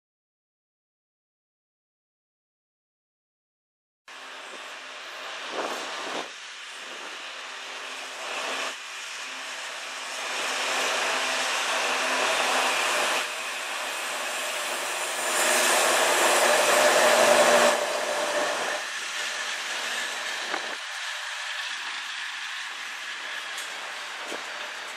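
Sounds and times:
diesel locomotive drone: 4.1 - 24.9
train wheels rushing on rails: 4.1 - 24.9.

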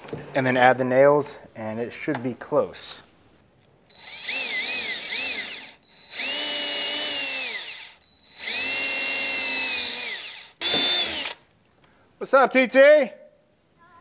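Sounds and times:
cordless drill drilling wood: 3.9 - 11.4.

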